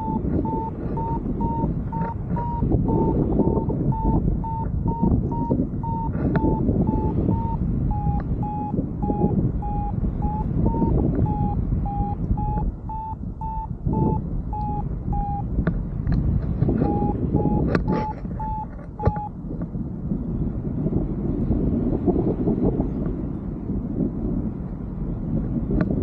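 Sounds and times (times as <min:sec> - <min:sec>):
variometer beeping: 0:00.0 - 0:15.7, 0:16.5 - 0:19.5
wind buffeting microphone: 0:00.0 - 0:26.0.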